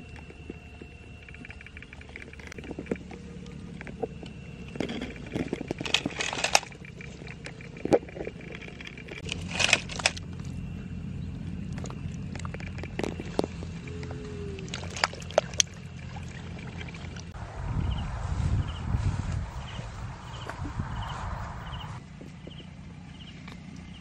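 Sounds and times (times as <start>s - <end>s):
rustling and scraping of trap: 0.2s - 10.3s.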